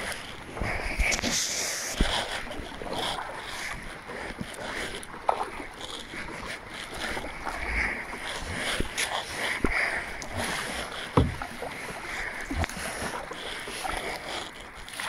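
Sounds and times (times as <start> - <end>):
paddle splashing water: 0.0 - 15.0
paddle knocks: 11.1 - 11.6.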